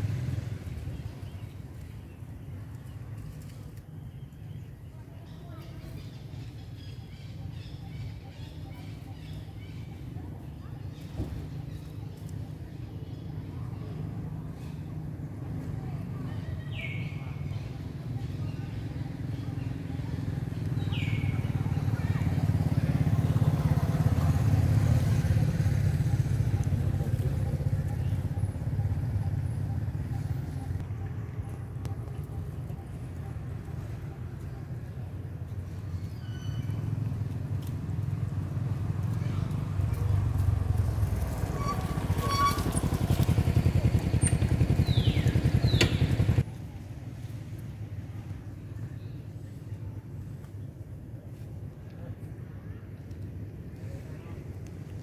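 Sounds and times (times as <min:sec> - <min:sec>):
engine running: 0:20.4 - 0:35.9, 0:36.6 - 0:46.5.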